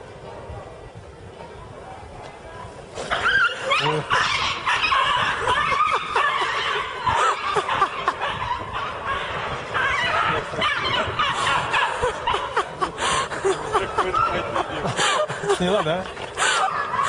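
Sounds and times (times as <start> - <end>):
people laughing: 3.6 - 17.0.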